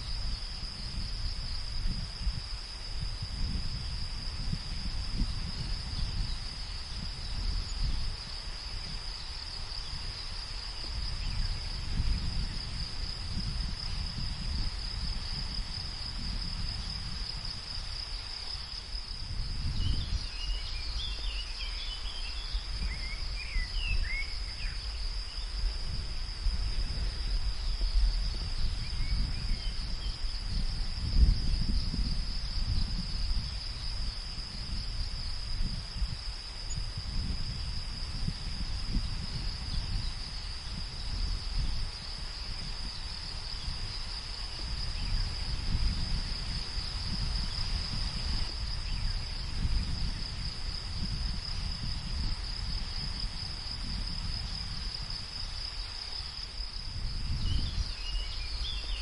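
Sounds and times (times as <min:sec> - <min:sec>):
high-pitched insect chorus: 0:00.0 - 0:59.0.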